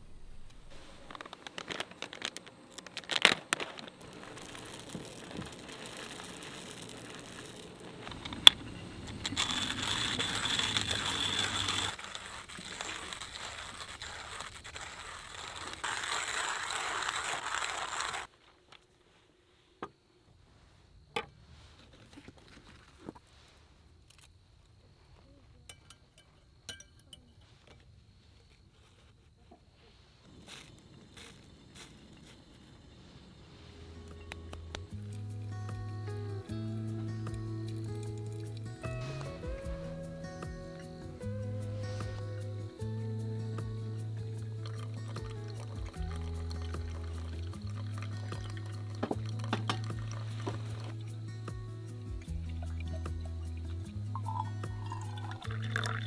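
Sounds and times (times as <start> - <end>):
paper bag crinkling: 0.0 - 18.7
coffee grinder grinding: 0.8 - 18.3, 44.6 - 51.2, 54.2 - 56.0.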